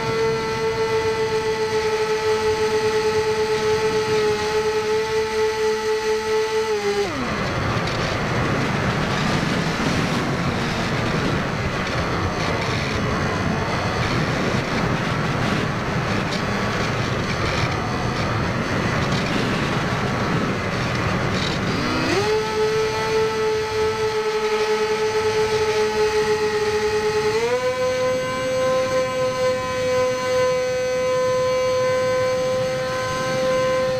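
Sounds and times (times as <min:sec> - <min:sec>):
electric motor propeller whine: 0:00.0 - 0:33.9
wind rushing past airframe: 0:05.6 - 0:27.4.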